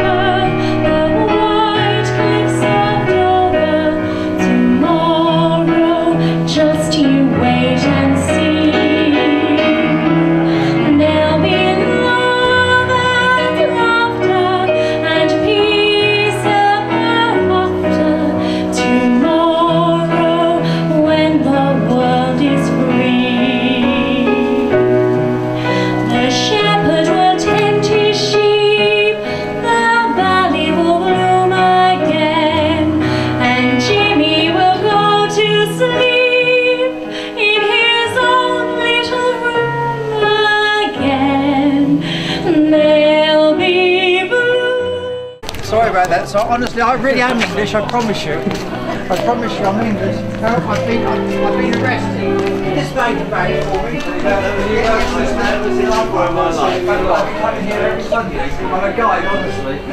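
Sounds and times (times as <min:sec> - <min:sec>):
woman singing with vibrato: 0:00.0 - 0:25.0, 0:25.6 - 0:45.4.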